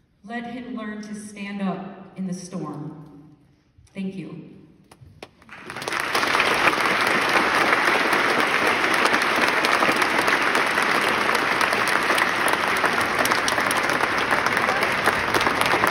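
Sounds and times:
large audience applauding: 5.2 - 15.9.

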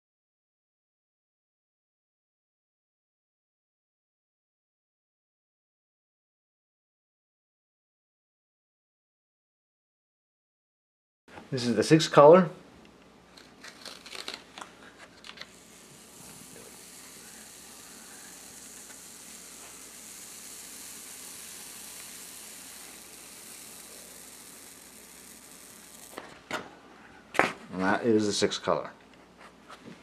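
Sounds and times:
paper rustling: 13.4 - 15.6
paper peeling off inked block: 13.4 - 26.2.

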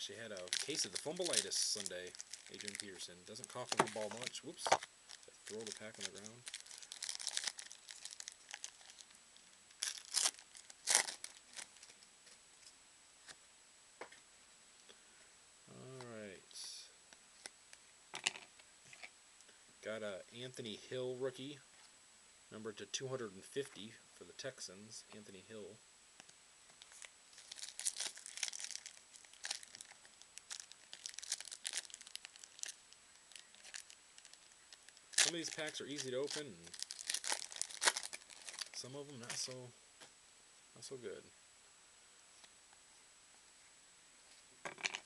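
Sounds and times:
foil wrapper tearing and crinkling: 0.2 - 9.1, 9.7 - 12.0, 26.9 - 34.5, 35.1 - 38.8.

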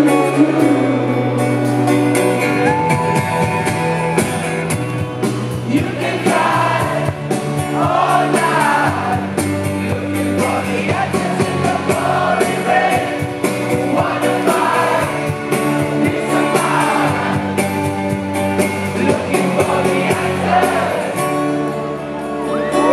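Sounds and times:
man singing: 0.0 - 1.5, 5.6 - 7.1, 7.7 - 17.5, 18.8 - 21.1
live rock band playing: 0.0 - 22.9.

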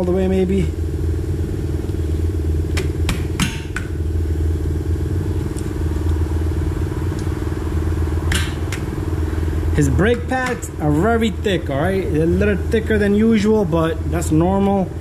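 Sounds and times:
low machine drone: 0.0 - 15.0.

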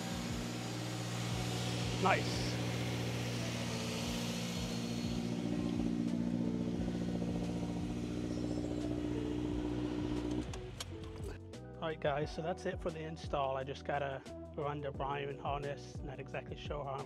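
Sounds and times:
car engine idling: 0.0 - 11.4.

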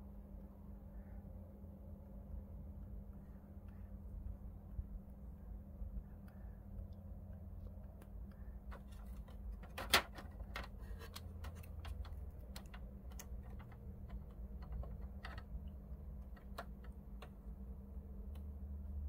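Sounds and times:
low steady hum: 0.0 - 19.0
light clicks and taps: 6.2 - 17.6, 18.3 - 18.6.

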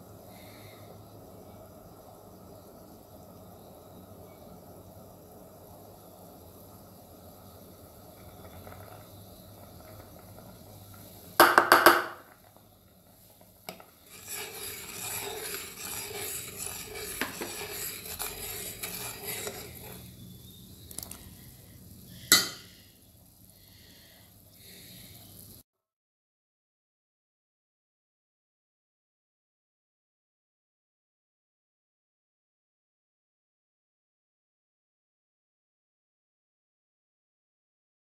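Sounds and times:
ladle stirring soup in pot: 13.6 - 20.2.

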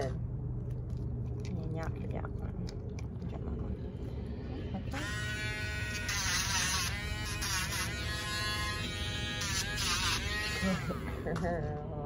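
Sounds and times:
rotary tool grinding nails: 5.1 - 10.8.

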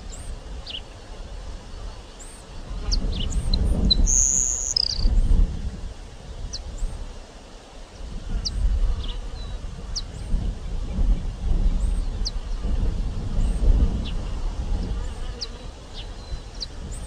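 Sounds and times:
sparrow singing: 2.9 - 5.1.

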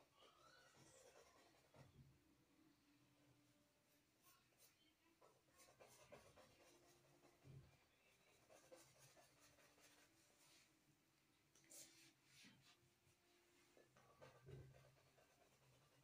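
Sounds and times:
paintbrush strokes on canvas: 3.9 - 10.8, 11.6 - 16.0.

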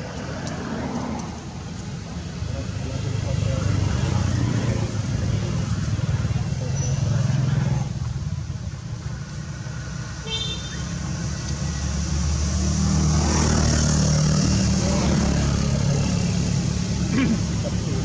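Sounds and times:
vehicle engine rumbling: 0.0 - 18.0.

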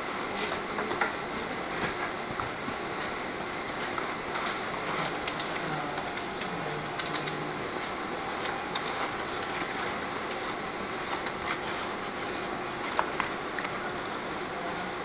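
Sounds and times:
paper rustling: 0.4 - 14.4
brush strokes spreading glue: 7.8 - 12.5.

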